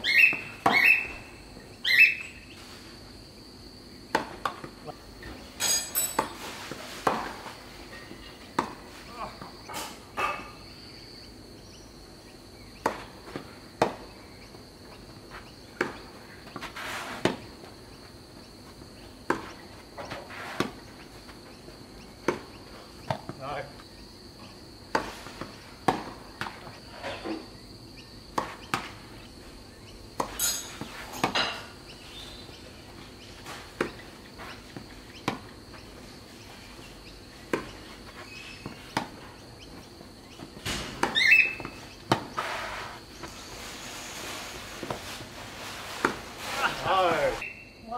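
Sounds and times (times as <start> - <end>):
insect drone: 0.0 - 47.9
tennis ball hit by rackets: 0.2 - 1.0, 4.1 - 4.8, 8.5 - 8.9, 12.8 - 14.1, 15.8 - 17.5, 19.2 - 21.0, 22.2 - 23.4, 24.9 - 26.8, 28.3 - 29.0, 33.7 - 34.0, 34.7 - 35.6, 37.5 - 37.9, 38.6 - 39.2, 40.6 - 42.4, 46.0 - 46.2.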